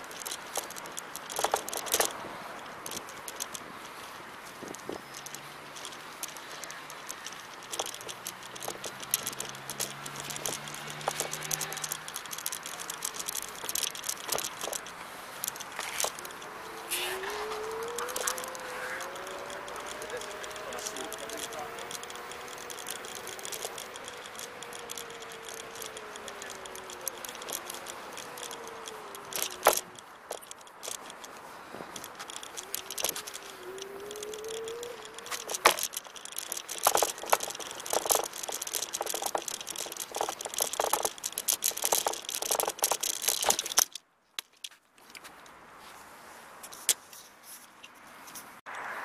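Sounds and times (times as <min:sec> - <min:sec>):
scooter rattling over paving: 0:00.0 - 0:44.0
wind and tyre noise: 0:00.0 - 0:49.0
electric scooter motor whine: 0:15.5 - 0:31.0, 0:31.9 - 0:43.0.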